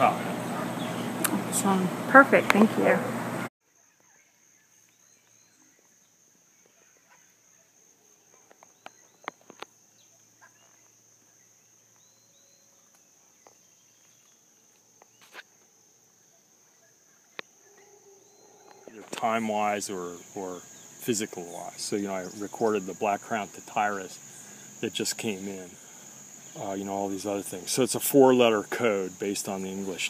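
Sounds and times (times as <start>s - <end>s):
insect trill: 3.6s - 30.0s
faint bird chips and calls: 3.8s - 19.4s.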